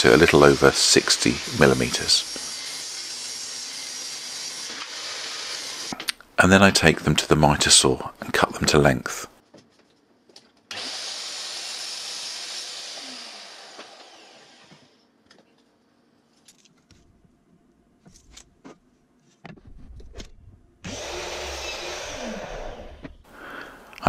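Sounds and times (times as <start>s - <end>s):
mitre saw cutting wood: 0.0s - 6.0s, 10.7s - 15.0s, 20.9s - 23.1s.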